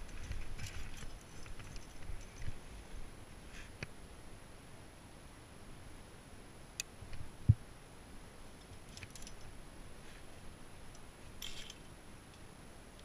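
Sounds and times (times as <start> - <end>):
metal carabiners clinking: 0.0 - 2.6, 8.6 - 9.5, 11.3 - 11.9
metal jangle: 8.9 - 9.5, 11.4 - 11.9.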